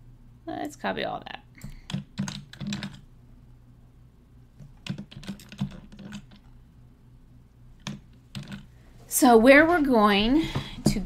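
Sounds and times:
computer keyboard keys clicking: 1.6 - 3.0, 4.6 - 6.5, 7.8 - 8.7.

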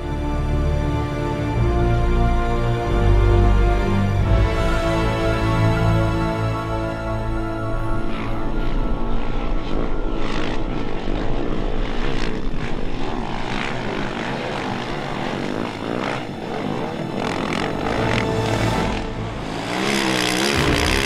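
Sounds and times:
motorcycle engine revving hard: 19.4 - 21.0.

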